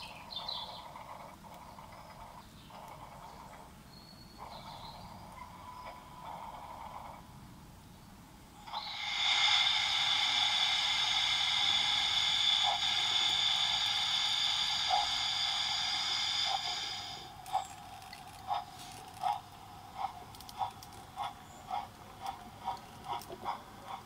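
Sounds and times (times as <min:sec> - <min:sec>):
soft steam chuffs: 0:00.0 - 0:07.4, 0:08.6 - 0:24.0
model steam whistle: 0:08.7 - 0:17.3.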